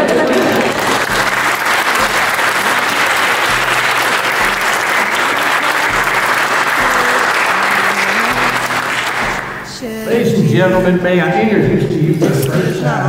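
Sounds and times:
crowd applauding: 0:00.0 - 0:10.2
soft instrumental music: 0:00.0 - 0:13.0.

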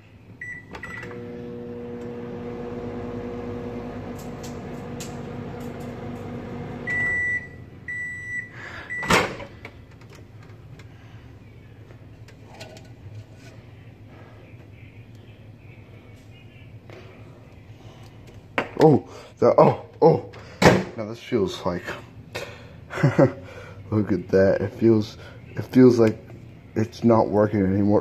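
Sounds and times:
microwave humming: 0:00.3 - 0:09.6
microwave keypad beeps: 0:00.4 - 0:01.2, 0:06.8 - 0:09.1
microwave beeps: 0:00.4 - 0:09.3.

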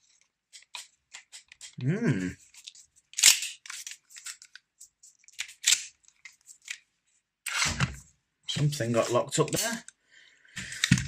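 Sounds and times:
pistol mechanism clacking: 0:03.2 - 0:03.6.

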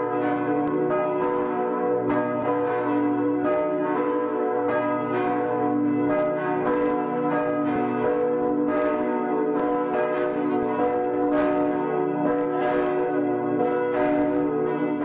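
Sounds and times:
church bells pealing: 0:00.0 - 0:15.0.

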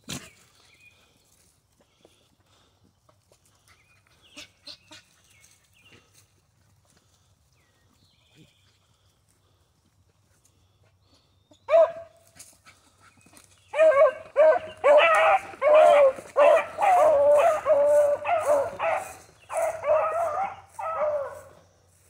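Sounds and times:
hounds bawling: 0:13.7 - 0:21.6.

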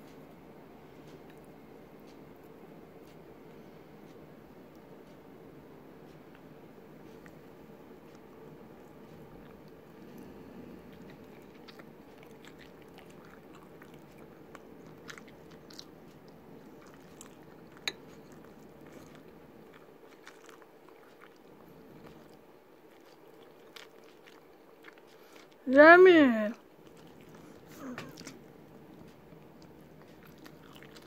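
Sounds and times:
person chewing: 0:08.0 - 0:25.6, 0:26.7 - 0:31.0.

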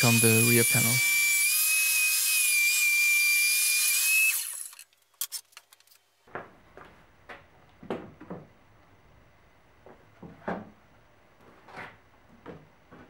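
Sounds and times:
table saw whining: 0:00.0 - 0:04.8.

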